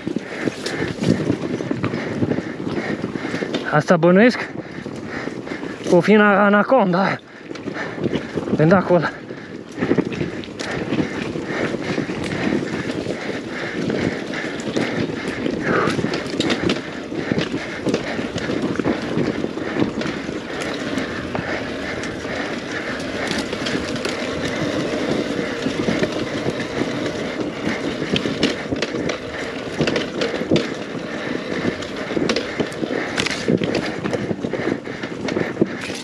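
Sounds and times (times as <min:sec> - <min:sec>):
bike clattering over rough ground: 0:00.0 - 0:36.0
two-stroke dirt bike engine: 0:07.8 - 0:34.4.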